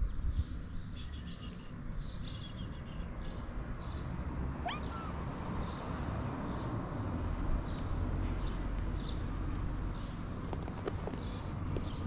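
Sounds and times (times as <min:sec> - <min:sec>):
cat meowing: 0:04.6 - 0:05.2.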